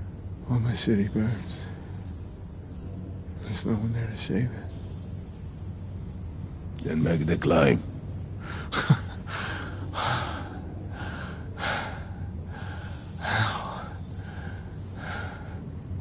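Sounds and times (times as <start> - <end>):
low steady hum: 0.0 - 16.0
man breathing hard: 9.3 - 15.7.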